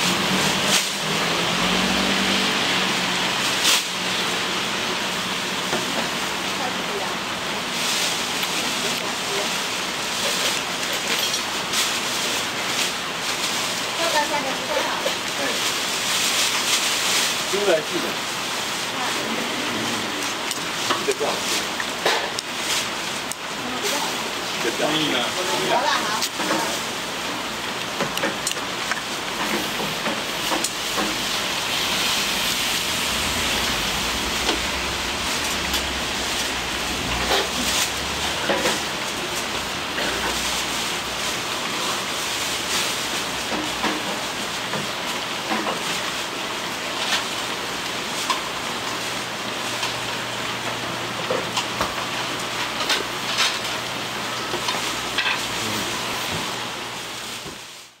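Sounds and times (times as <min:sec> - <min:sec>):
low hum: 0:31.9 - 0:38.3.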